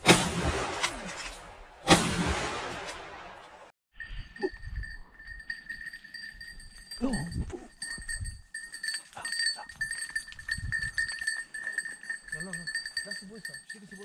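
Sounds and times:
collar bell jangling: 0:04.0 - 0:14.0.

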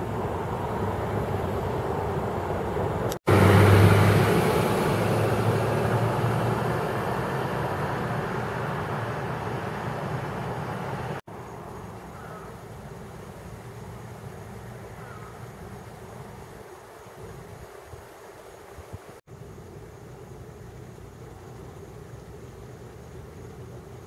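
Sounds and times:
motor vehicle passing: 0:00.0 - 0:11.2
outdoor noise: 0:00.0 - 0:24.0.

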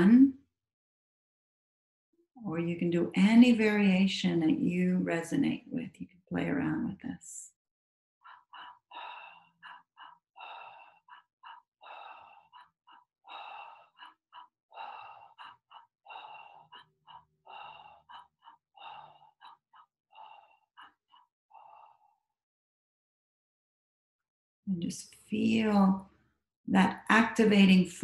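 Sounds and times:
woman breathing rapidly: 0:08.2 - 0:22.4.

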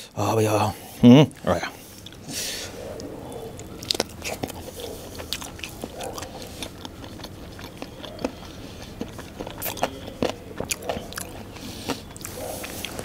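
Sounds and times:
man chewing food: 0:01.2 - 0:13.0
mouth clicks and smacks: 0:03.0 - 0:13.0.

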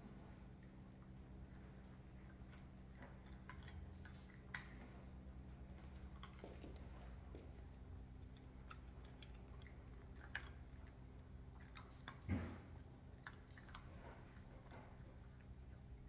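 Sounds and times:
cats crunching dry kibble: 0:01.5 - 0:16.0
thump: 0:12.3 - 0:12.6.

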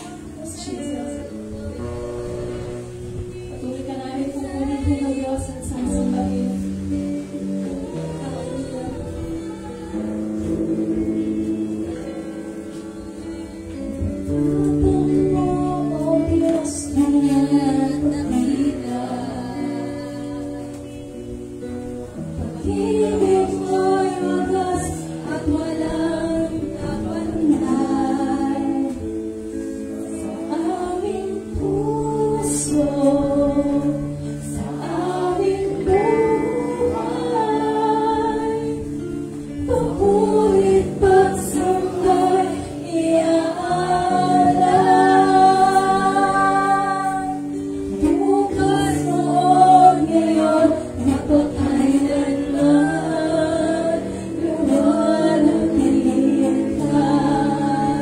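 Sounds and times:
woman singing into microphone: 0:00.0 - 0:58.0.

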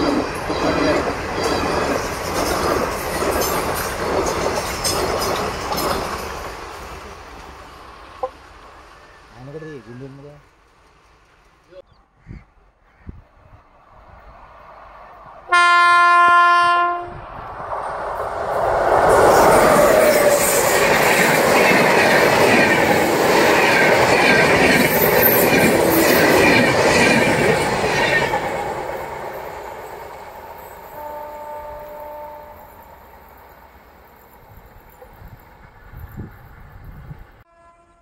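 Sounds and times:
train wheels clattering on rails: 0:00.0 - 0:08.5, 0:18.2 - 0:31.0
locomotive horn blast: 0:15.5 - 0:17.2, 0:30.9 - 0:32.9, 0:37.5 - 0:38.0.

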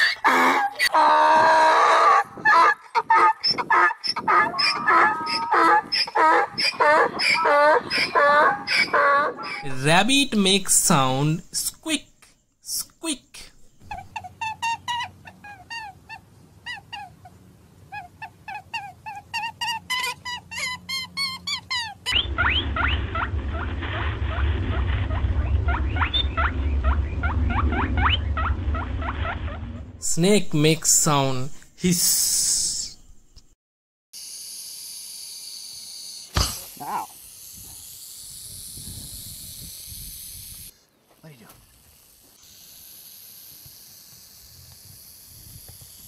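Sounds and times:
rabbit squeaking: 0:02.4 - 0:10.1, 0:13.7 - 0:29.8
steady low rumble: 0:22.1 - 0:31.6
sharp thump: 0:36.3 - 0:36.7.

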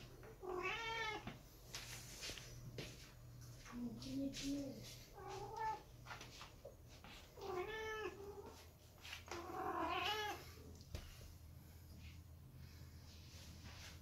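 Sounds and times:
cat meowing: 0:00.4 - 0:01.3, 0:07.4 - 0:08.5, 0:09.4 - 0:10.4.

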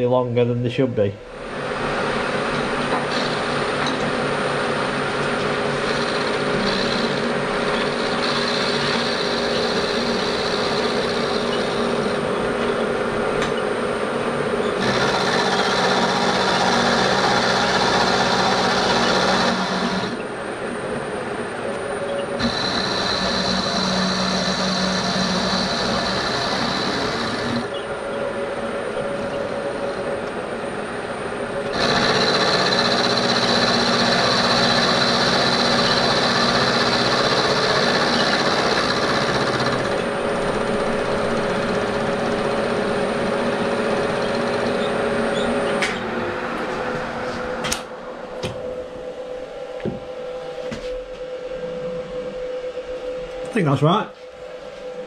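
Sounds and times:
machine hum: 0:00.0 - 0:55.0
milling machine cutting metal: 0:03.0 - 0:04.2, 0:05.3 - 0:13.6, 0:14.6 - 0:20.3, 0:22.4 - 0:27.8, 0:31.7 - 0:45.8.

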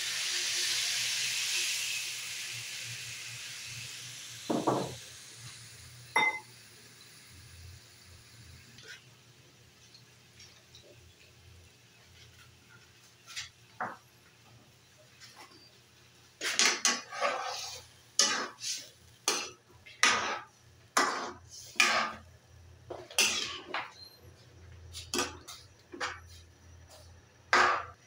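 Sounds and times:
metal spoon scraping a wok: 0:16.4 - 0:22.2, 0:23.1 - 0:23.8.

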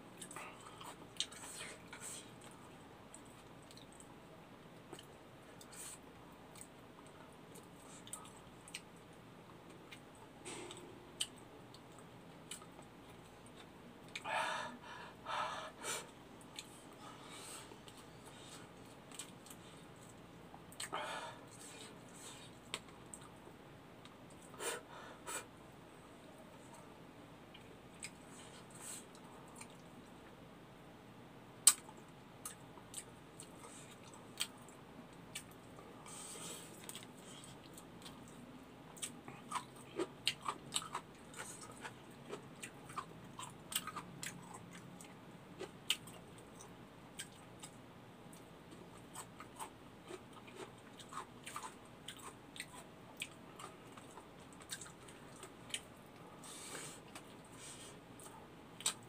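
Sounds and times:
chewing and handling food: 0:00.1 - 0:04.2, 0:04.8 - 0:14.3, 0:16.1 - 0:24.6, 0:27.5 - 0:30.4, 0:31.6 - 0:59.0
eating sounds: 0:31.6 - 0:59.0.

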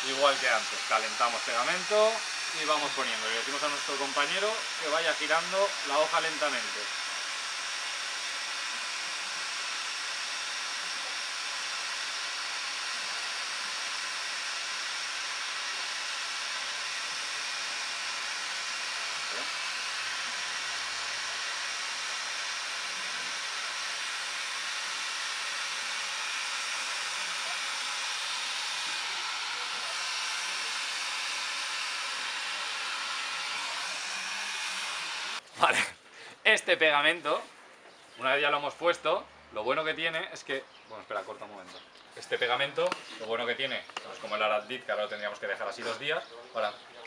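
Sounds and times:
heat gun fan hissing: 0:00.0 - 0:35.4.

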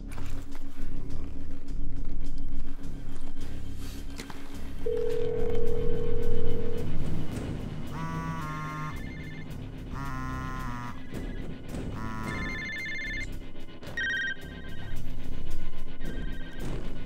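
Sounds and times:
background film music: 0:00.0 - 0:17.0
telephone ringing: 0:04.8 - 0:07.0, 0:12.4 - 0:13.3, 0:14.0 - 0:14.7.

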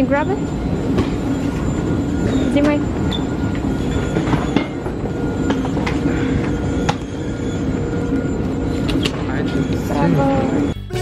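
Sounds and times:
baggage carousel rumble and whine: 0:00.0 - 0:10.8.

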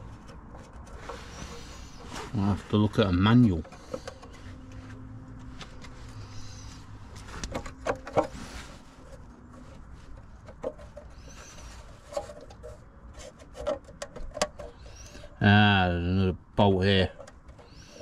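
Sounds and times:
tools clicking and knocking: 0:13.4 - 0:14.9.

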